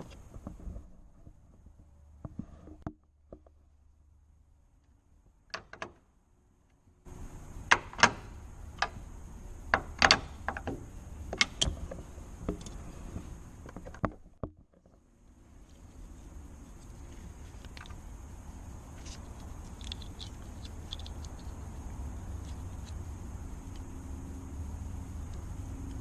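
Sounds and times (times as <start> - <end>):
metallic clicks and knocks: 9.7 - 12.8.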